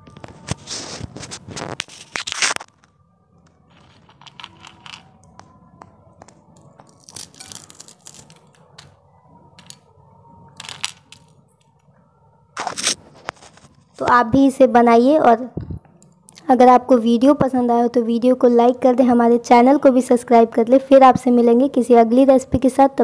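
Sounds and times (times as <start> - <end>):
crisp dumplings crunching: 6.2 - 9.0.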